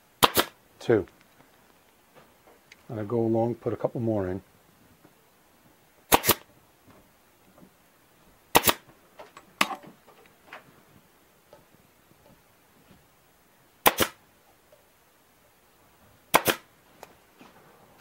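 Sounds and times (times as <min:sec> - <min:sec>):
pneumatic stapler firing: 0:00.2 - 0:00.6, 0:06.1 - 0:06.4, 0:08.5 - 0:08.8, 0:13.8 - 0:14.2, 0:16.3 - 0:16.7.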